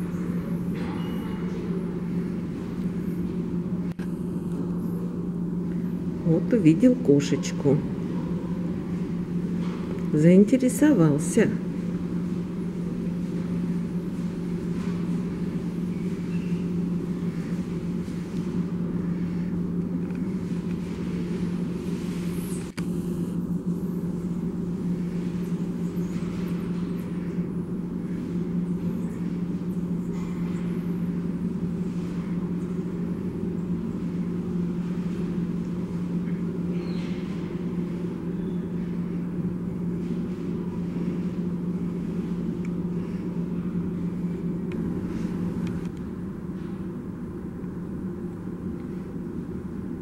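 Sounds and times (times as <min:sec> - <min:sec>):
low machine hum: 0:00.0 - 0:50.0.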